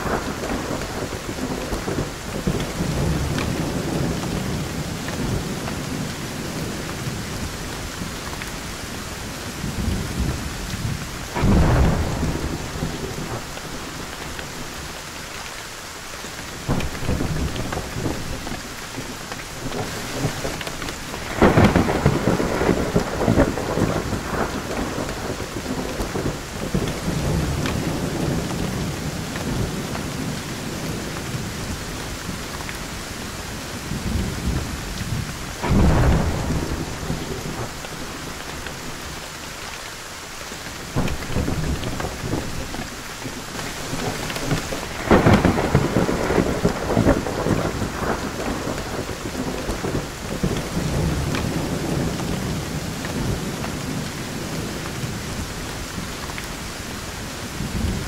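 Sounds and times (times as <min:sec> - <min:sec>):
steady rain: 0:00.0 - 0:58.0
rolling thunder: 0:09.5 - 0:14.7, 0:19.7 - 0:32.6, 0:33.4 - 0:39.2, 0:43.7 - 0:56.2.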